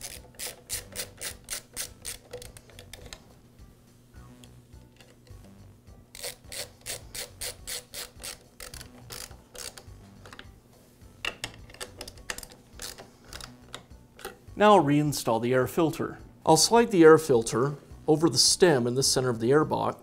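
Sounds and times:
nut driver clicking: 0.0 - 3.2, 6.1 - 10.5, 11.2 - 14.4.

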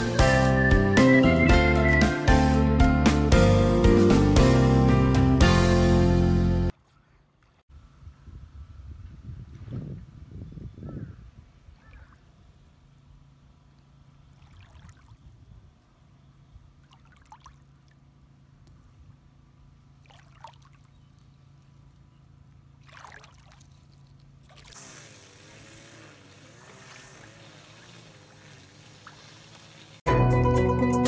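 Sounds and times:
background music: 0.0 - 6.7, 30.1 - 31.0
water gurgles: 22.8 - 23.7, 26.6 - 30.0
river trickling over stones: 22.8 - 30.1.

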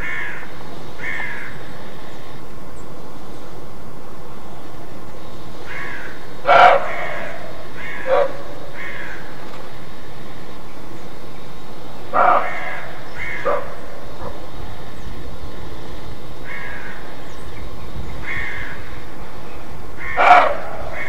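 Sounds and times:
deer barking: 5.8 - 9.2, 12.1 - 14.5, 20.0 - 21.0.

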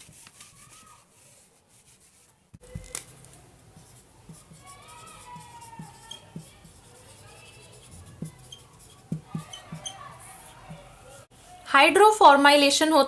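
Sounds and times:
pen scratching on paper: 3.8 - 10.8.

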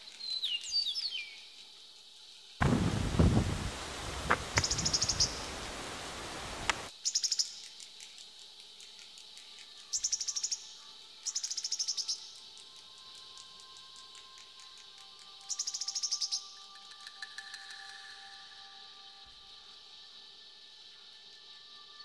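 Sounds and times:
loud rushing noise with rumbles: 2.6 - 5.0
high-pitched chirping trills: 4.6 - 6.0.

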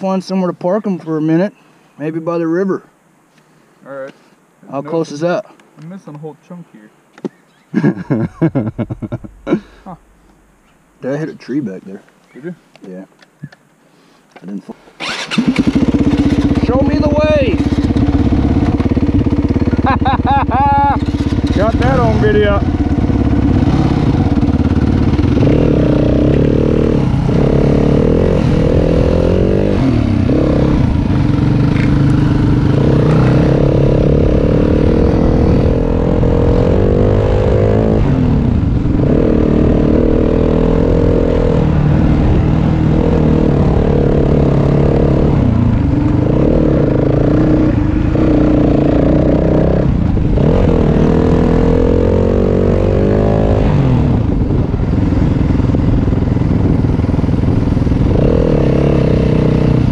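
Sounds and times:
motorcycle engine revving: 15.0 - 59.9.

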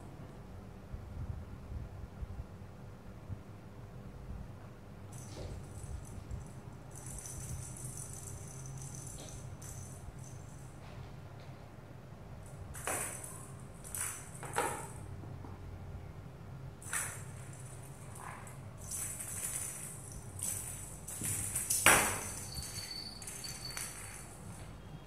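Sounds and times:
toy ball bell jingling: 5.2 - 10.7, 12.8 - 14.9, 18.8 - 24.7.

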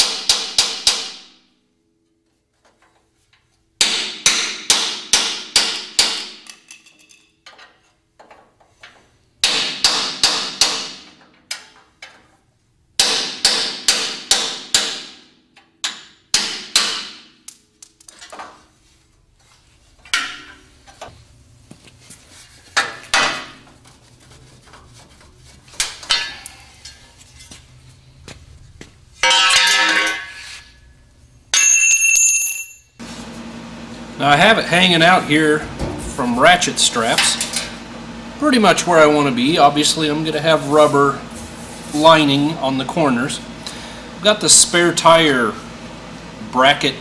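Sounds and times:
hammer striking steel frame: 0.0 - 1.5, 3.8 - 7.2, 9.4 - 11.9, 13.0 - 17.6, 20.0 - 20.7, 25.8 - 27.0, 29.2 - 30.7, 31.5 - 32.2.

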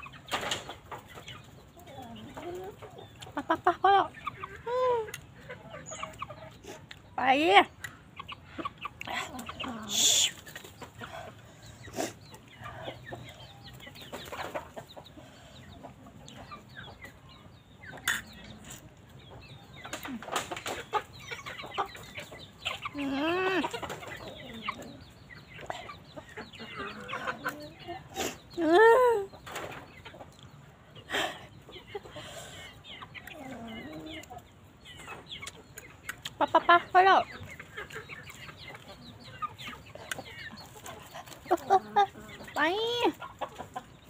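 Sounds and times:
chickens clucking: 0.0 - 44.0.

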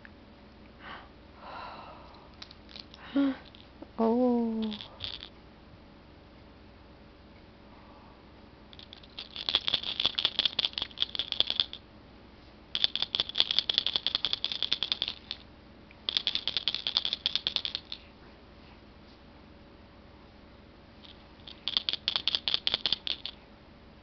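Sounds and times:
toy rattle shaken: 2.4 - 3.8, 4.4 - 5.4, 8.7 - 11.8, 12.7 - 15.5, 16.1 - 18.1, 21.0 - 23.4.

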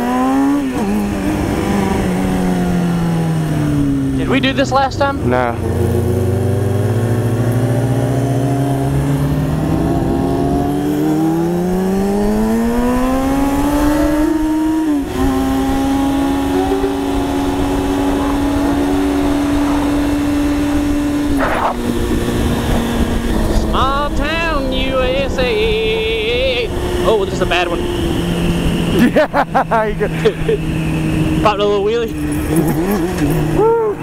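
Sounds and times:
motorcycle engine accelerating: 0.0 - 34.0
wind rush: 11.8 - 29.2.

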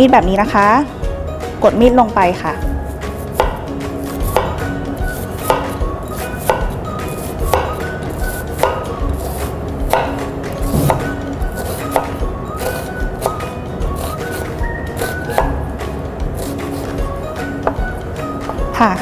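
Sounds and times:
soft background music: 0.0 - 19.0
knife cutting onion: 2.7 - 15.7, 16.3 - 18.6
knife knocking on cutting board: 10.7 - 11.1.

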